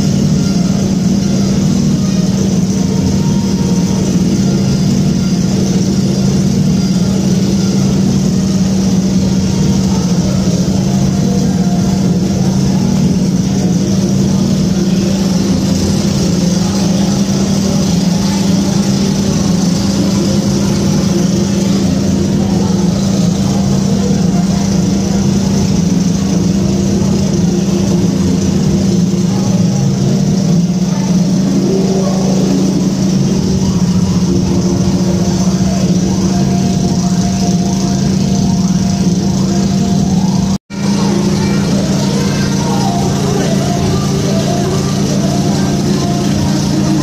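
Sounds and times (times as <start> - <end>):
boat engine humming: 0.0 - 47.0.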